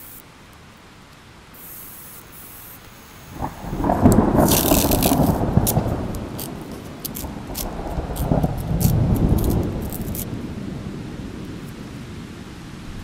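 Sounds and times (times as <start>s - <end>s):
stiff paper crackling: 3.4s - 10.3s
sandpaper scraping and rubbing: 4.1s - 10.3s.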